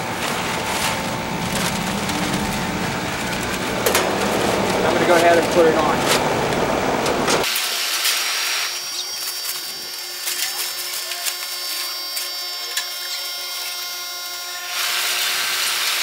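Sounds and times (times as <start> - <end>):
condensing unit humming: 0.0 - 7.5.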